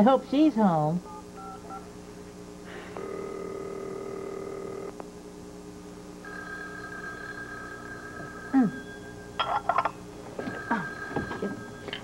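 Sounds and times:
telephone ringback tone: 0:01.1 - 0:01.9, 0:03.0 - 0:04.9, 0:06.2 - 0:09.6, 0:10.4 - 0:12.0.

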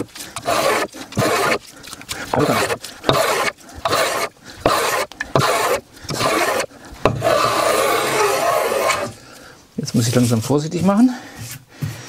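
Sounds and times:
hand plane shaving wood: 0:00.0 - 0:09.2.

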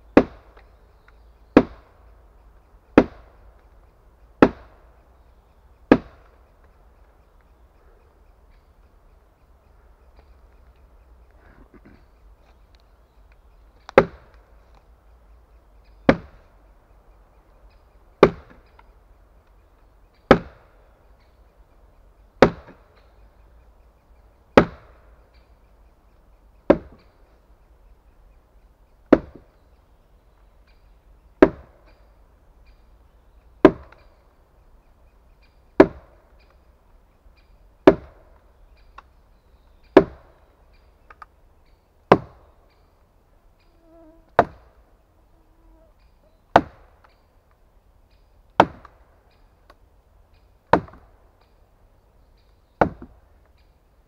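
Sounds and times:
wooden mallet striking wedges: 0:00.2 - 0:00.5, 0:03.0 - 0:03.2, 0:04.4 - 0:04.7, 0:14.0 - 0:14.3, 0:16.1 - 0:16.4, 0:18.2 - 0:18.6, 0:20.3 - 0:20.6, 0:22.4 - 0:22.8, 0:24.6 - 0:24.8, 0:26.7 - 0:27.0, 0:29.1 - 0:29.4, 0:31.4 - 0:31.7, 0:33.6 - 0:34.0, 0:35.8 - 0:36.1, 0:37.8 - 0:38.2, 0:40.0 - 0:40.2, 0:42.1 - 0:42.4, 0:44.4 - 0:44.6, 0:46.5 - 0:46.8, 0:48.6 - 0:48.9, 0:50.7 - 0:51.0, 0:52.8 - 0:53.2.

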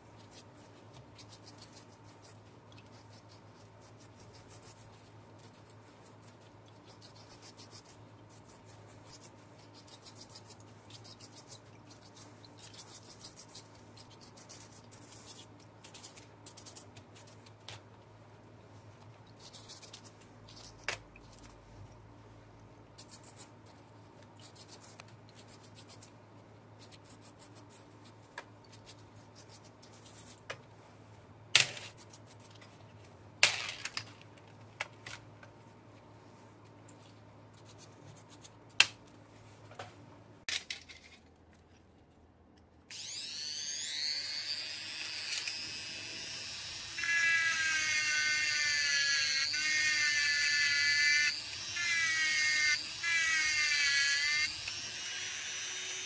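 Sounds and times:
rotary tool running: 0:42.9 - 0:47.0.

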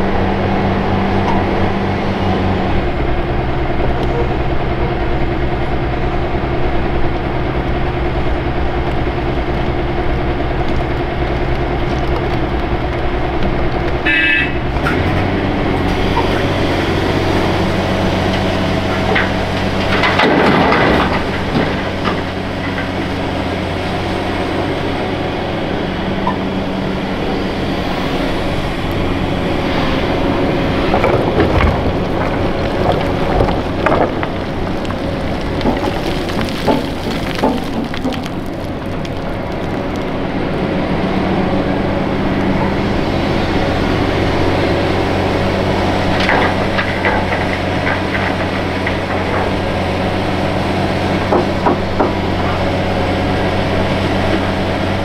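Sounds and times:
excavator diesel engine running: 0:00.0 - 0:55.0
bucket and dirt clattering: 0:15.8 - 0:23.2, 0:30.7 - 0:40.2, 0:45.5 - 0:55.0.

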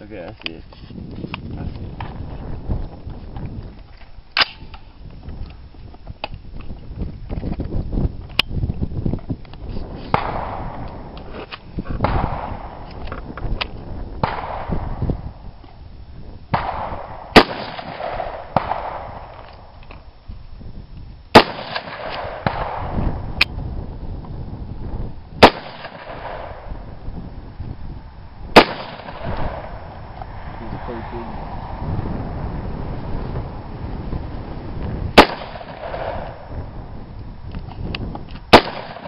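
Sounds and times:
loud rifle shots: 0:14.2 - 0:15.0, 0:16.5 - 0:19.4, 0:21.3 - 0:23.0, 0:25.4 - 0:26.7, 0:28.5 - 0:29.9, 0:35.2 - 0:36.5, 0:38.5 - 0:39.0
fainter gunshot cracks: 0:16.6 - 0:19.1, 0:21.4 - 0:22.9, 0:25.4 - 0:26.6, 0:28.6 - 0:29.7, 0:35.2 - 0:36.4, 0:38.5 - 0:39.0.

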